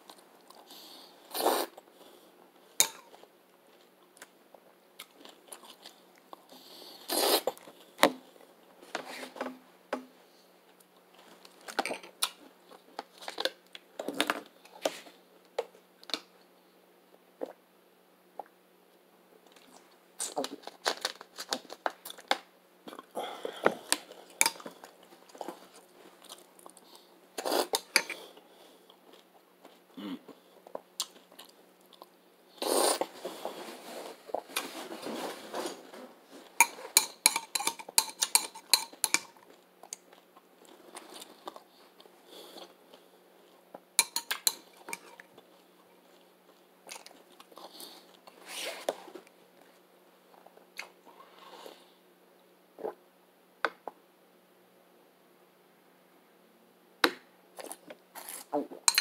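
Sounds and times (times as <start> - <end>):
spoon clinking and scraping bowl: 36.6 - 39.3, 44.0 - 45.2.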